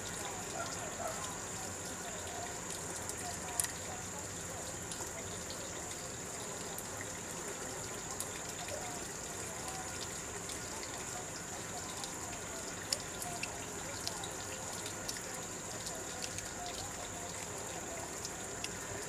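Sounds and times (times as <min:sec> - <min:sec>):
running water rushing: 0:00.0 - 0:19.0
faint clicks: 0:02.3 - 0:03.9.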